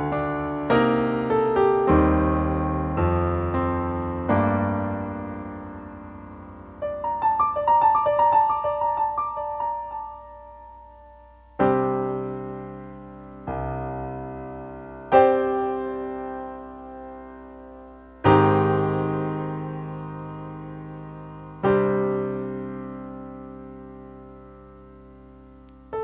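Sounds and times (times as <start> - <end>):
solo piano music: 0.0 - 26.0.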